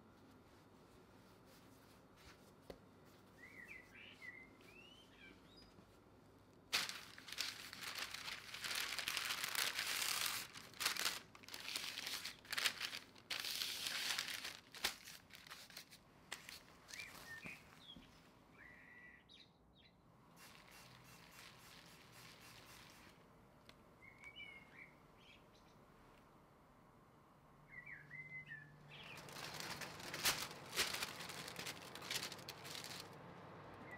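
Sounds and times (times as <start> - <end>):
small birds chirping: 3.3 - 5.9, 16.8 - 20.0, 24.0 - 25.8, 27.7 - 30.4
baking paper crinkling: 6.7 - 17.8, 20.4 - 23.2, 28.9 - 33.2.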